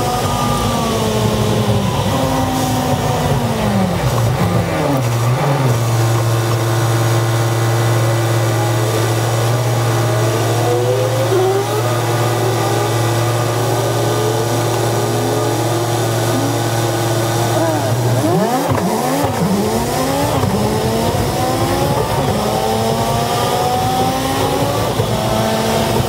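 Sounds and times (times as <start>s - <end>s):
bus engine idling: 0.0s - 18.6s
other vehicle engines: 0.0s - 26.0s.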